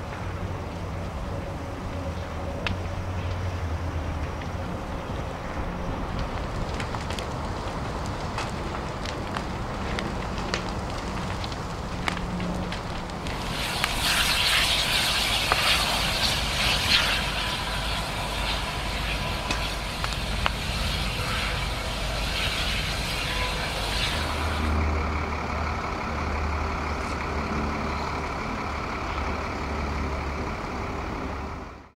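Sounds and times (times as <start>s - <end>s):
burning timbers crackling and hissing: 0.0s - 31.9s
heavy vehicle engine rumble: 0.0s - 31.9s
sharp pops: 13.2s - 24.7s.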